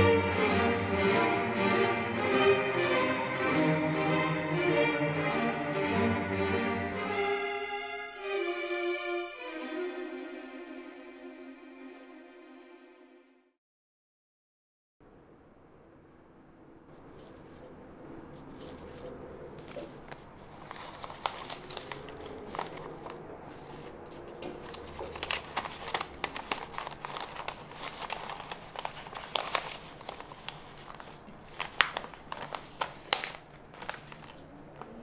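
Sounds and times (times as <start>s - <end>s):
paper rustling and crackling: 16.9s - 35.0s.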